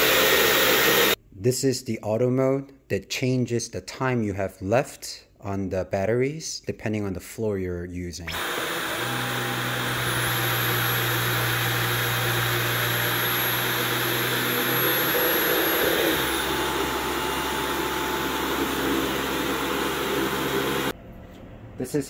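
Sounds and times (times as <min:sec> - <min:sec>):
vacuum cleaner motor hum: 0:00.0 - 0:01.2, 0:08.3 - 0:21.0
vacuum high whine: 0:00.0 - 0:01.2, 0:08.3 - 0:21.0.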